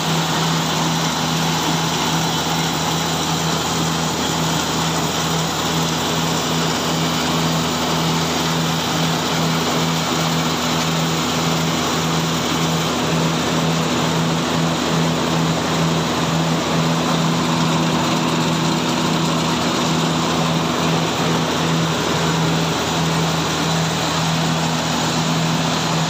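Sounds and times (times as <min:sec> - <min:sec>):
rice milling machine running: 0:00.0 - 0:26.0.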